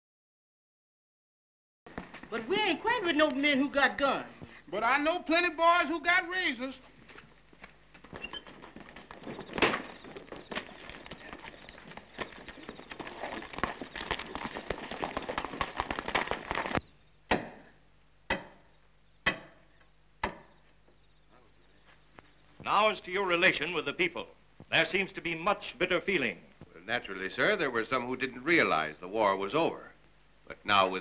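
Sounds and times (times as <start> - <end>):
crackling and scuffling noise: 1.9 - 4.7, 6.1 - 17.0, 20.6 - 27.0
club pounding stone: 15.4 - 17.7, 18.3 - 20.6.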